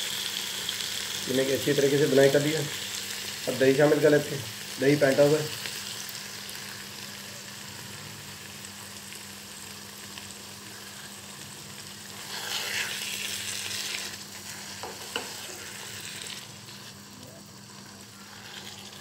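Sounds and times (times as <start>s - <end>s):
meat sizzling in oil: 0.0s - 19.0s
spatula stirring: 11.9s - 17.1s, 17.9s - 19.0s.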